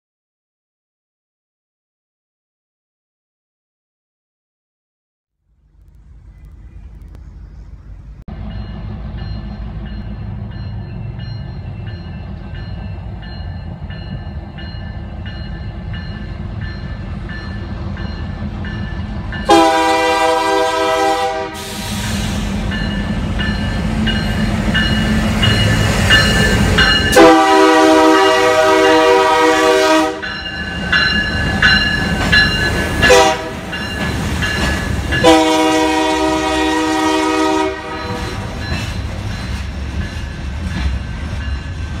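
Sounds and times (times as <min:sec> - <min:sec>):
freight cars rolling by: 0:05.4 - 0:19.5
diesel locomotive rumbling: 0:05.4 - 0:42.0
train air horn blasts: 0:19.4 - 0:22.6, 0:27.1 - 0:30.4, 0:33.0 - 0:33.8, 0:35.2 - 0:38.6.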